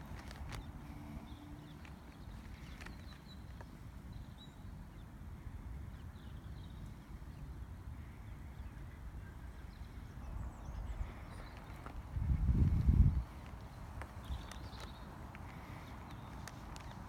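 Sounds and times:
wind buffeting microphone: 5.5 - 17.0.

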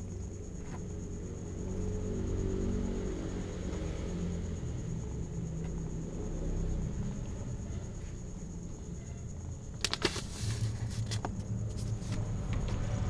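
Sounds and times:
paper rustling and clicks: 9.7 - 12.2
kitten paws scratching: 9.8 - 12.2.

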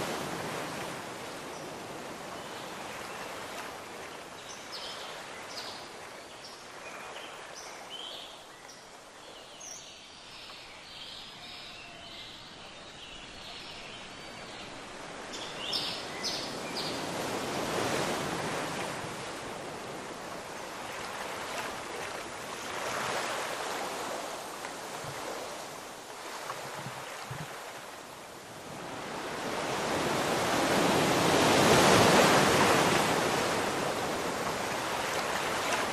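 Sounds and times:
ocean surf washing ashore: 0.0 - 4.3, 14.8 - 35.9.

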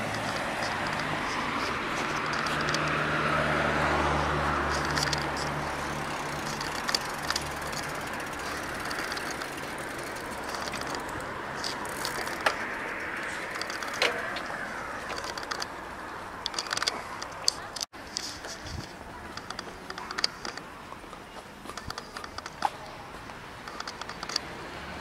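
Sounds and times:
vehicle engine running close by: 0.0 - 13.3
traffic background hum: 0.0 - 25.0
sharp clicks: 4.7 - 9.8, 10.4 - 15.7, 16.4 - 20.7, 23.7 - 24.4.

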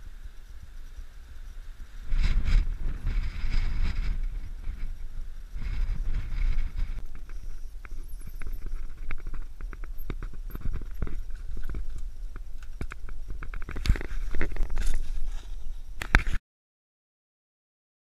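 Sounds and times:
wind rumble on microphone: 0.0 - 16.4
bike clicking and knocking on rock: 5.6 - 15.4.

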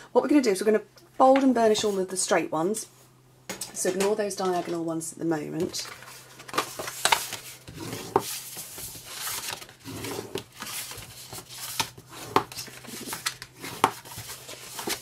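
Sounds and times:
paper rustling and rubbing: 5.8 - 15.0.

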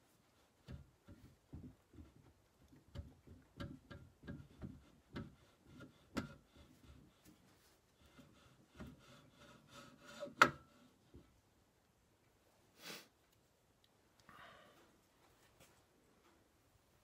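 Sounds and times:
short metal scrape: 9.0 - 10.4.

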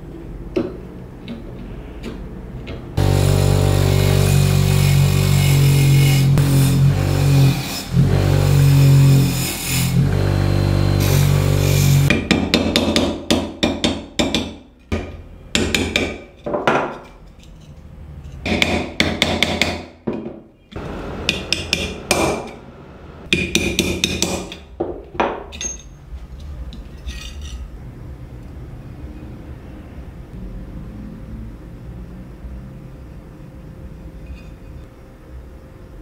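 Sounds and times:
hammer striking metal: 18.4 - 22.6, 23.3 - 25.9.

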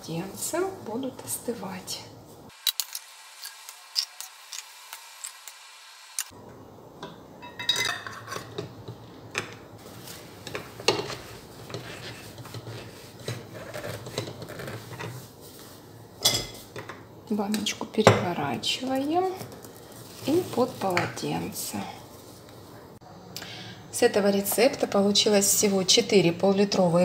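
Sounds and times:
metal ladle scraping a pot: 9.8 - 15.3.

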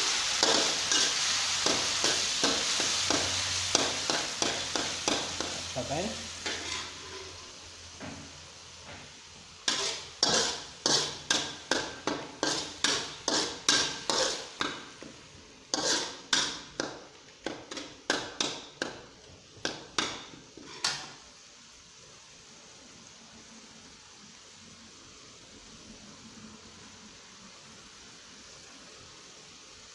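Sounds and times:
metal spatula scraping a wok: 0.0 - 7.7, 9.6 - 15.0, 15.7 - 17.0, 19.9 - 21.2.

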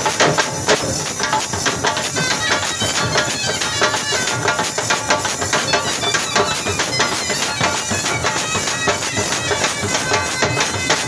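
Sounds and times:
fast drum beat: 0.0 - 11.0
shrill reed wind instrument: 1.6 - 11.0.

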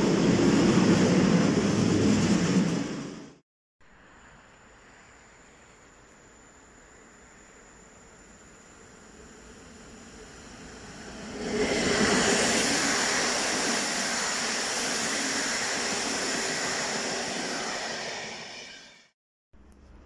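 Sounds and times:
passenger train passing: 0.0 - 3.4, 8.6 - 19.2
wheels rolling on rail: 8.8 - 19.1.

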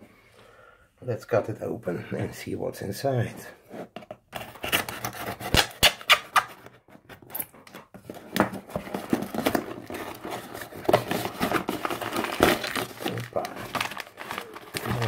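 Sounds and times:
cardboard tearing: 4.4 - 6.6, 7.3 - 15.0.

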